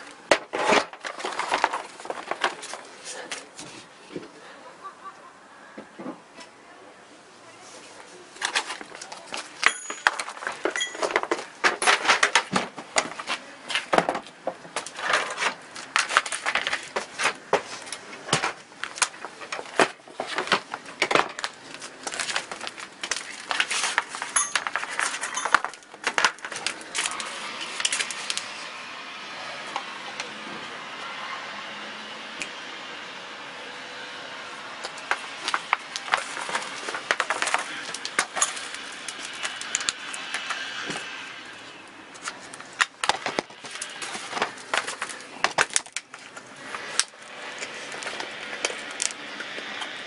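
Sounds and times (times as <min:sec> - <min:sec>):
hard plastic cases clattering: 0:00.3 - 0:02.9, 0:08.4 - 0:27.1, 0:35.1 - 0:38.8.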